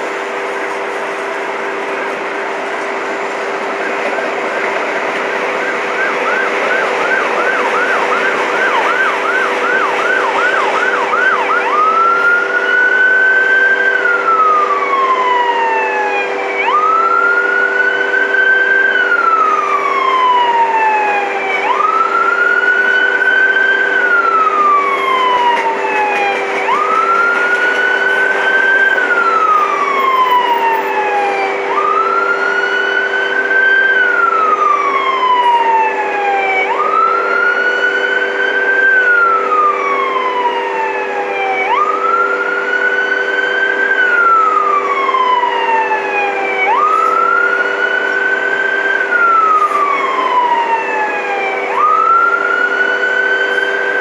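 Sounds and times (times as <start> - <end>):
freight cars rolling: 0.0 - 42.9
siren yelping and wailing: 0.0 - 54.0.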